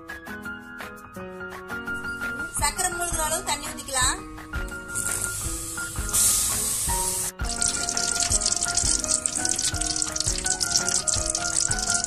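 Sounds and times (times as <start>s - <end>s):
background music: 0.0s - 12.0s
crackling hiss: 4.9s - 12.0s
water pouring and splashing: 4.9s - 12.0s.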